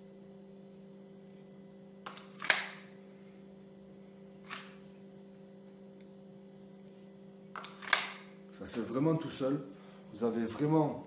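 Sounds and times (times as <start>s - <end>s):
steady low hum: 0.0s - 11.0s
handgun clicks: 7.6s - 8.3s.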